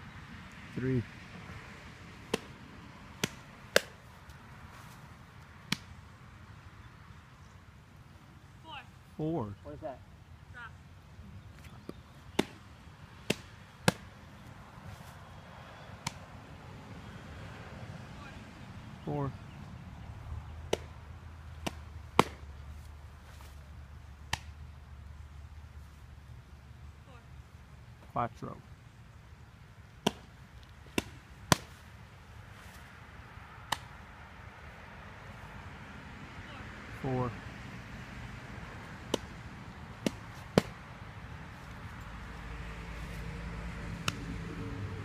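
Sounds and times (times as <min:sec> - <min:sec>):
softball smacking into gloves: 0:02.3 - 0:02.6, 0:03.2 - 0:04.0, 0:11.6 - 0:14.1, 0:16.0 - 0:16.2, 0:20.7 - 0:22.5, 0:24.2 - 0:24.6, 0:30.0 - 0:31.9, 0:33.6 - 0:34.0, 0:39.0 - 0:40.8, 0:44.0 - 0:44.3
ball popping into catcher's mitt: 0:03.2 - 0:04.0, 0:21.6 - 0:22.5, 0:30.0 - 0:31.8, 0:33.7 - 0:34.0, 0:39.1 - 0:39.4.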